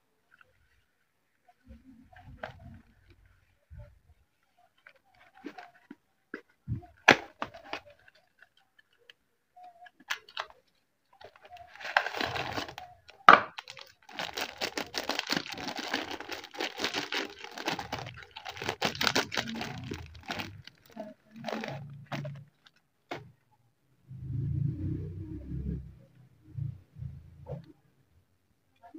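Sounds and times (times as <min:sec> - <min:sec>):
plastic wrapper crinkling and tearing: 0:07.0 - 0:23.2.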